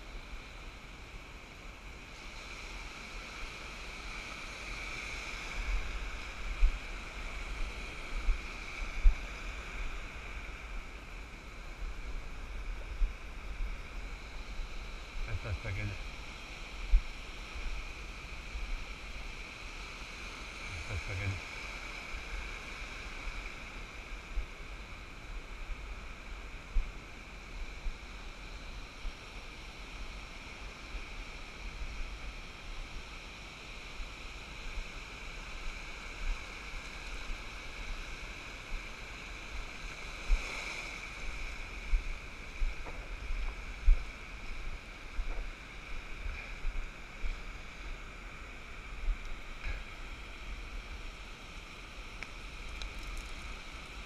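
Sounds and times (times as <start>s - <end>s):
surf washing up a sandy beach: 0.0s - 54.0s
wind buffeting microphone: 38.8s - 50.8s.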